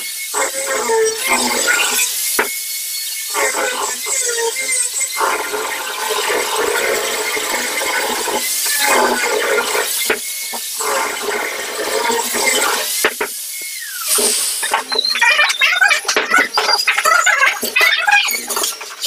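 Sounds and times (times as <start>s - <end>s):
angle grinder sanding wood: 0.0s - 15.1s.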